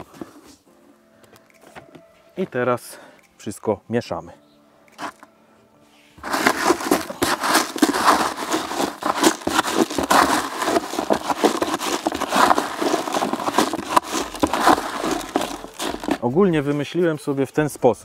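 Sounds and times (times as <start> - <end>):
hands stirring bait in bucket: 6.2 - 16.2.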